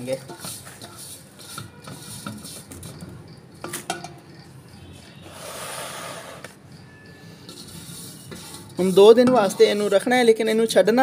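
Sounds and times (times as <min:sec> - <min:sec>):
plate clinking and knocking: 0:03.6 - 0:04.2.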